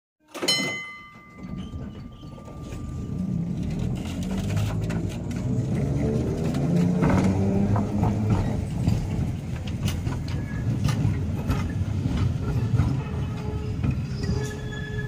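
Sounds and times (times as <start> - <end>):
ringing tone: 0.5 - 3.6
tram motor hum: 1.0 - 15.0.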